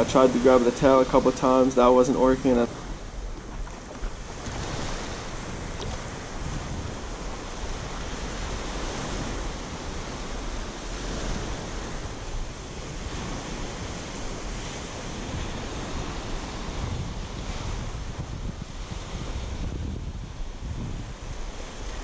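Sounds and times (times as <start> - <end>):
small waves breaking on sand: 0.0 - 22.0
wind buffeting microphone: 0.0 - 22.0.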